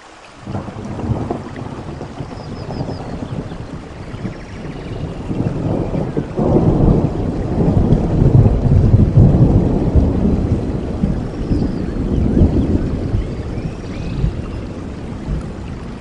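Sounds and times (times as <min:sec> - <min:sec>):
heavy rain: 0:00.0 - 0:16.0
thunder rumbling: 0:00.4 - 0:16.0.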